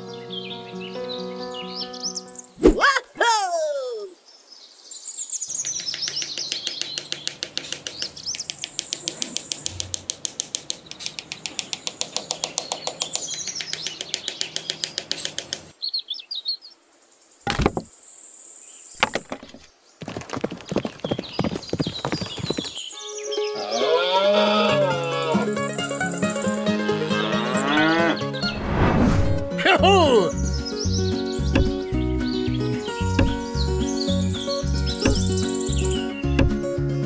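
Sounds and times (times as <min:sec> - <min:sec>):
birds chirping: 0:00.0 - 0:37.0
sharp knocks: 0:17.5 - 0:17.9, 0:19.0 - 0:19.7, 0:31.6 - 0:31.8, 0:33.1 - 0:33.6, 0:35.0 - 0:35.8, 0:36.4 - 0:36.7.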